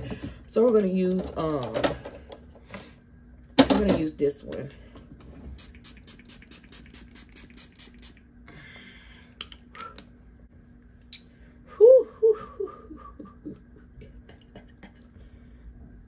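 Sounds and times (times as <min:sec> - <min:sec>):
spray bottle spritzing: 0:05.6 - 0:08.2.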